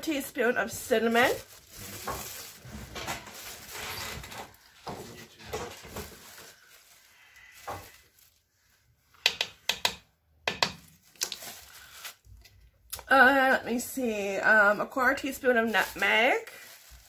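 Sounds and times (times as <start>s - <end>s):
plastic bag rustling: 0.0s - 9.1s, 10.8s - 12.4s, 15.1s - 17.0s.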